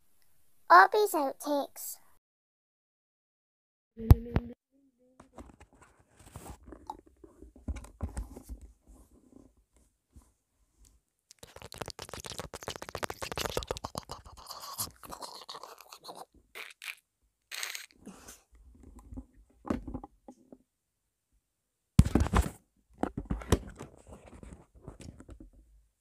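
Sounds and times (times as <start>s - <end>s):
microphone handling scratches: 5.3s - 9.3s.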